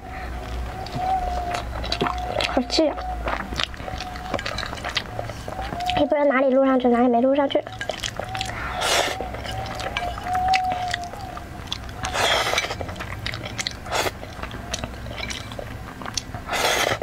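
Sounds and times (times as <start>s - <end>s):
wet chewing: 0.0s - 17.0s
noodles being slurped: 0.4s - 6.4s, 7.4s - 17.0s
chopsticks clicking: 7.6s - 16.3s.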